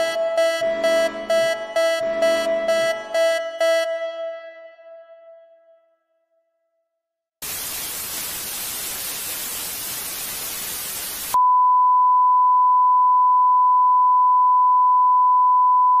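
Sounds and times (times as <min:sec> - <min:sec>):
television static hiss: 0:07.4 - 0:11.4.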